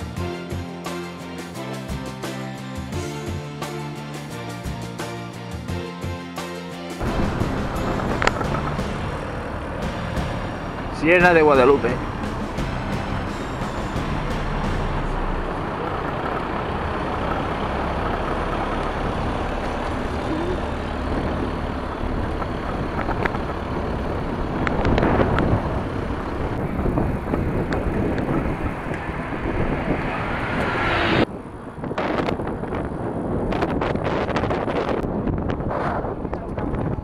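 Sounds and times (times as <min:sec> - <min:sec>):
traffic noise: 0:07.0 - 0:37.0
bike tyre noise: 0:15.0 - 0:37.0
wind buffeting microphone: 0:15.4 - 0:37.0.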